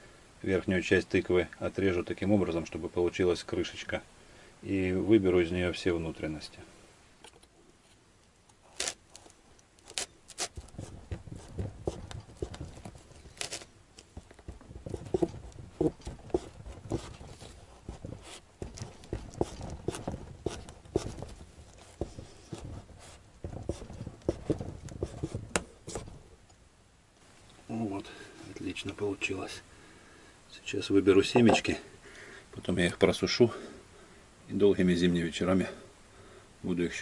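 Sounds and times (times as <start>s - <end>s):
knife cutting pumpkin rind: 8.6s - 9.2s, 9.8s - 13.7s, 14.5s - 26.1s.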